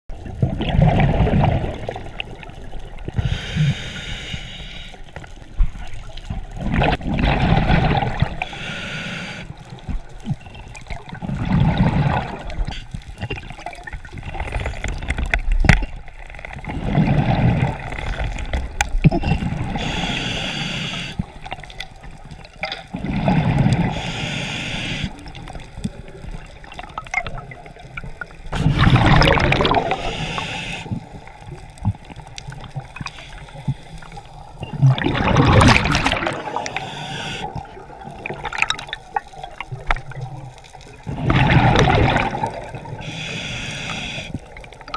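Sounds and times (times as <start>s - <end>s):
exhaled bubbles underwater: 0.1s - 3.8s, 5.2s - 8.7s, 9.5s - 44.9s
regulator hiss on inhalation: 3.2s - 5.0s, 8.4s - 9.6s, 19.7s - 21.3s, 23.9s - 25.3s, 29.9s - 31.2s, 36.5s - 37.6s, 43.0s - 44.4s.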